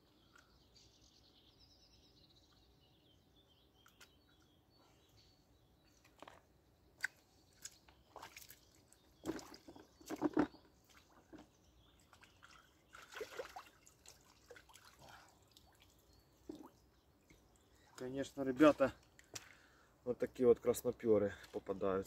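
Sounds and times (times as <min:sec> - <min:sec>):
water splashing and dripping: 0:06.9 - 0:19.7.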